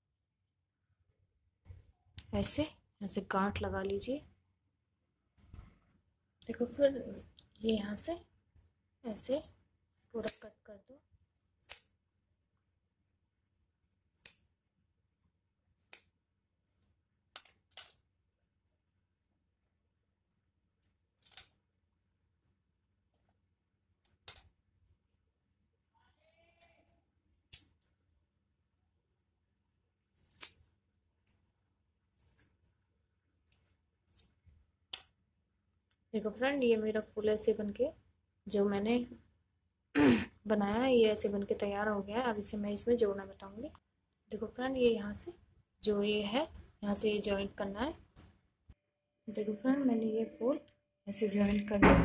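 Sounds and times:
scissors snipping yarn: 10.2s - 10.5s, 11.6s - 12.0s, 14.2s - 14.6s, 15.8s - 16.2s.

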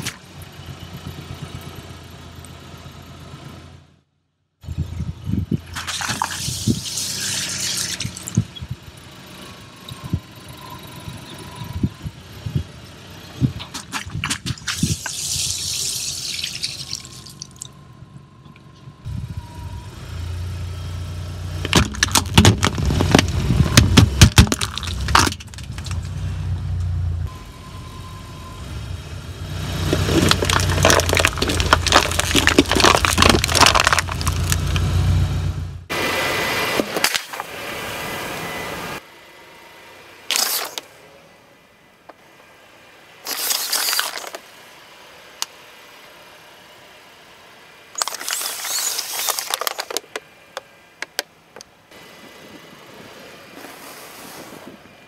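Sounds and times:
car engine humming: 4.8s - 53.7s
foil trays crumpling: 30.1s - 34.6s, 43.3s - 44.4s.

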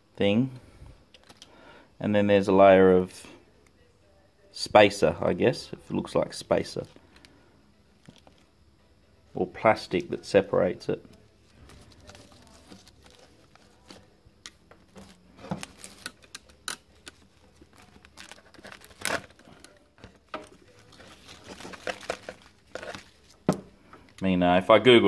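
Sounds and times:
foil crinkling and tearing: 11.6s - 14.2s, 14.9s - 23.4s.

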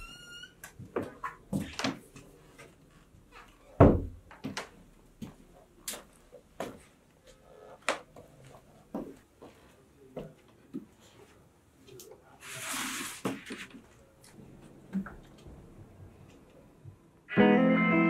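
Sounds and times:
footsteps on hard floor: 4.4s - 6.9s.

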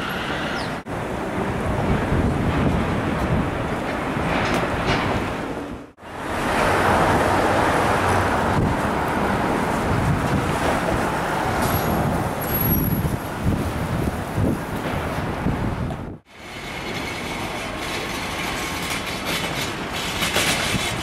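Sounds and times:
wind buffeting microphone: 0.0s - 5.9s, 6.6s - 16.3s
city street traffic: 0.0s - 21.0s.

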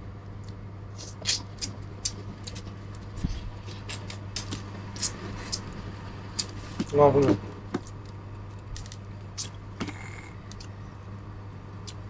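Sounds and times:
steady low hum: 0.0s - 12.0s
crab being sucked and chewed: 0.9s - 5.8s.

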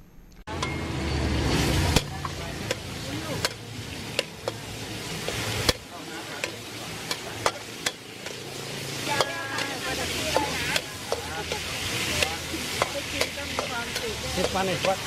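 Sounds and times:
oil sizzling in a wok: 0.5s - 15.0s
metal spatula clinking on wok: 2.0s - 8.4s, 9.1s - 15.0s.

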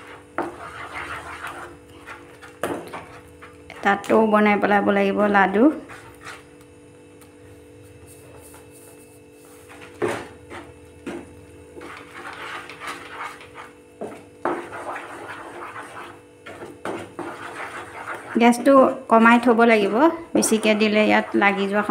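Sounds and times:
wooden spatula scraping metal pan: 0.0s - 3.9s, 5.6s - 6.5s, 11.8s - 18.8s, 19.7s - 21.9s
steady low hum: 0.0s - 21.9s.

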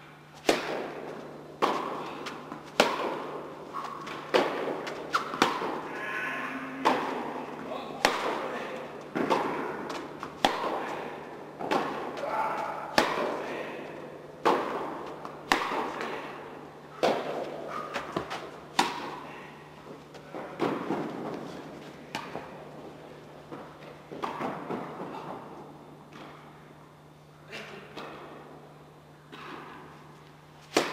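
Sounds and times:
tennis ball bounces: 0.4s - 5.9s, 6.8s - 7.4s, 9.1s - 10.9s, 12.9s - 13.4s, 14.4s - 16.2s, 17.0s - 19.2s
tennis racket strikes: 0.4s - 5.9s, 6.8s - 7.4s, 8.0s - 13.5s, 14.4s - 16.4s, 17.0s - 19.2s, 30.6s - 30.9s.

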